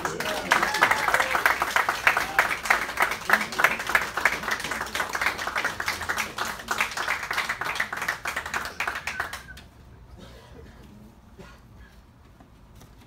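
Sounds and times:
people applauding: 0.0 - 9.7.

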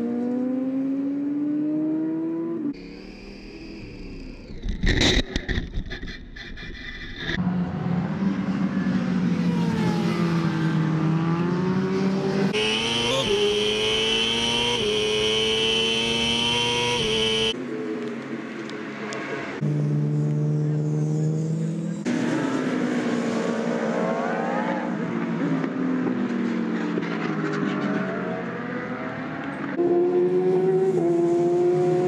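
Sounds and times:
motorcycle engine at high revs: 10.7 - 17.6, 29.8 - 32.0.

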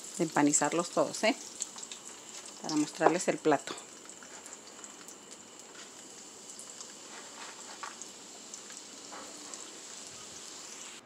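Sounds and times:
food sizzling in hot oil: 0.0 - 11.0
oil popping and crackling: 0.0 - 11.0.

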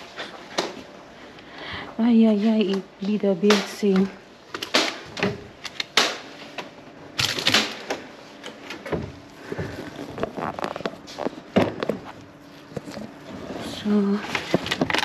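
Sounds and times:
rustling bags in plastic bins: 9.2 - 15.0
clatters and crinkles: 9.5 - 15.0.

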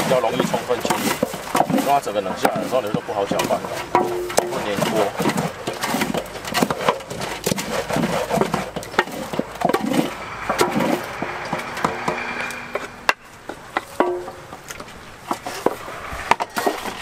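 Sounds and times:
wooden paddle scraping metal basin: 0.0 - 17.0.

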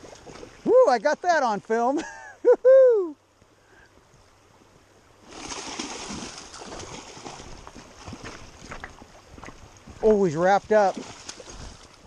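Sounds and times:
fish splashing in water: 5.2 - 8.9.

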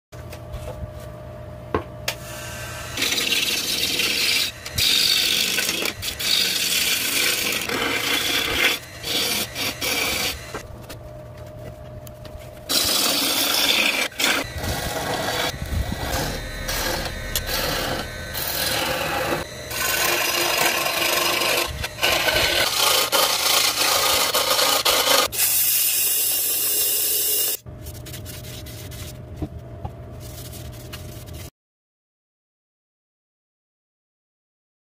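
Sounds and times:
lathe humming: 2.2 - 25.3
gouge scraping spinning log: 3.0 - 10.7, 12.4 - 25.3.

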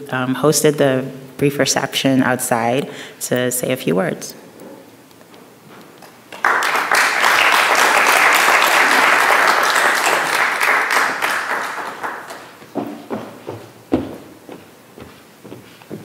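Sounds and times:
audience applauding: 6.3 - 12.7.

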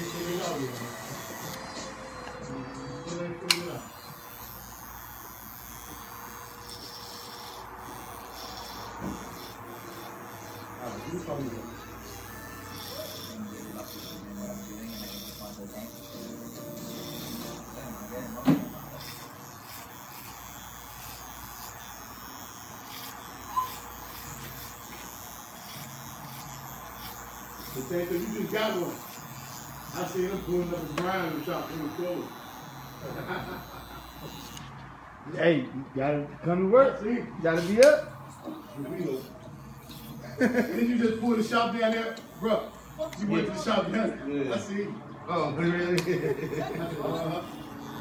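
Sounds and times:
electric hair clippers running: 0.0 - 35.2, 37.2 - 44.7, 45.5 - 48.0
sharp click: 3.5 - 3.7.

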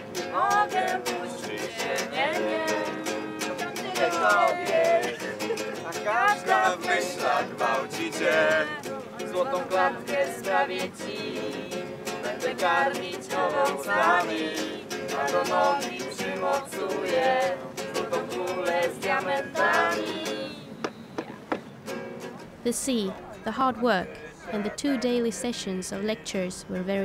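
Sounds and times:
person singing: 0.0 - 20.6
acoustic guitar: 0.0 - 27.0.

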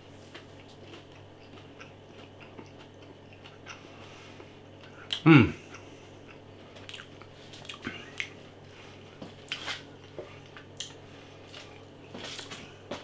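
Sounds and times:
person chewing food: 0.0 - 13.0
mouth clicks and smacks: 6.9 - 8.4.

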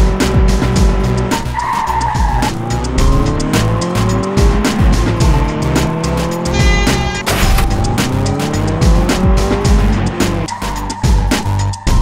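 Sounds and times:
engine revving up: 0.0 - 10.8
background music with steady beat: 0.0 - 12.0
tyre screech: 1.4 - 3.0, 6.5 - 7.8.

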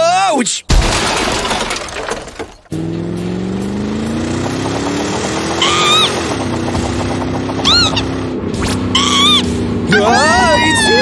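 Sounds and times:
car engine accelerating: 2.7 - 11.0.

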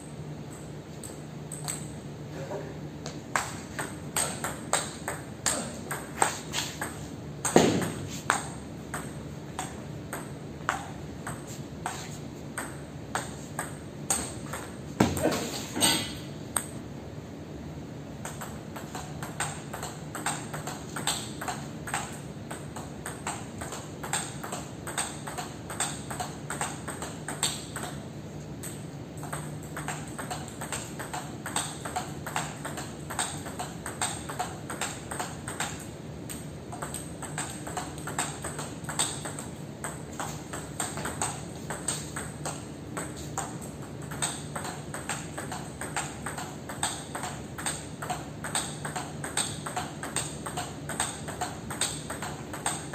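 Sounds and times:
table tennis ball clicking: 18.2 - 28.0, 28.6 - 52.9.

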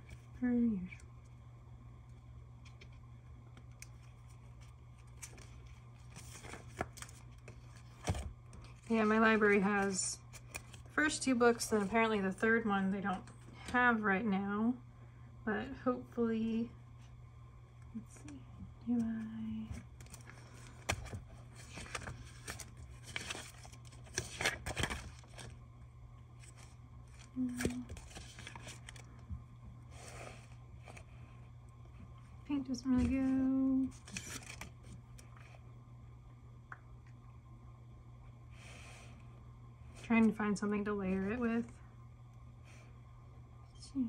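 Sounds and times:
steady low hum: 0.0 - 44.0
paper pages rustling and flapping: 3.6 - 10.9, 19.7 - 25.6, 26.4 - 29.2, 33.9 - 35.0.

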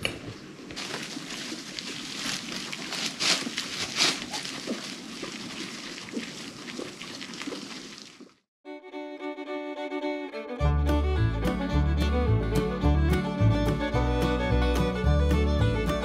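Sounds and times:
dry hay rustling and crackling: 0.6 - 8.2.

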